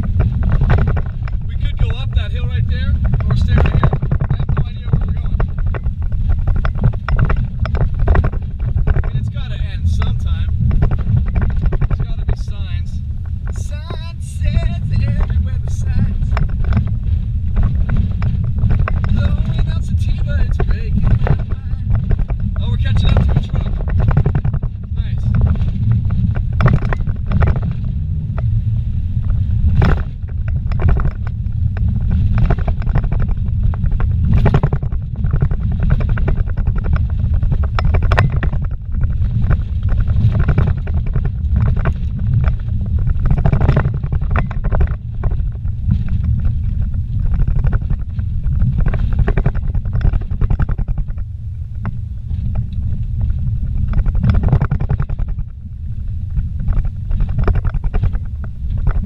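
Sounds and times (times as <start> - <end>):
vehicle knocking over bumps: 0.0 - 28.6, 29.2 - 52.6, 56.6 - 59.0
engine and tyres rumbling on gravel: 0.0 - 59.0.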